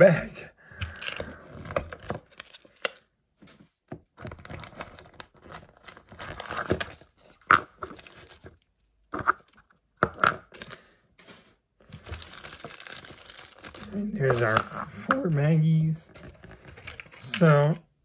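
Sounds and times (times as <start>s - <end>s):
plastic packets crinkling and tearing: 0.8s - 3.1s, 4.1s - 8.7s, 11.8s - 15.2s, 16.1s - 17.6s.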